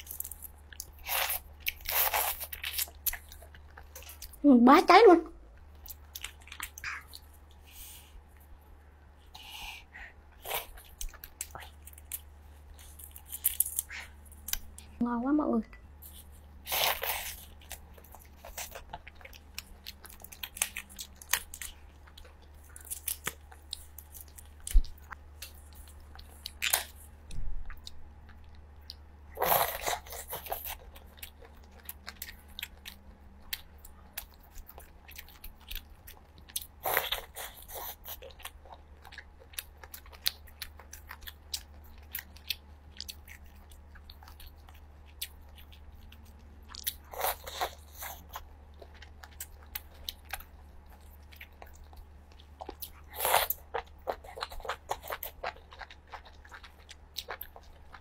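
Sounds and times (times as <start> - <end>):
chewing shellfish: 16.0 - 58.0.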